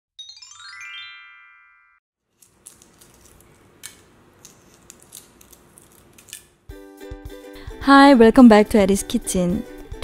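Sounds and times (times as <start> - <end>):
egg shell being peeled: 2.3 - 6.7.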